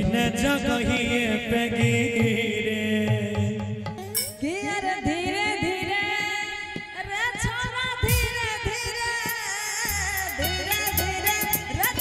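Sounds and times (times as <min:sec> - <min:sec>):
drum strokes: 0:03.1 - 0:04.8, 0:07.4 - 0:12.0
cymbal crash: 0:04.0 - 0:04.4
live folk band music: 0:09.9 - 0:12.0.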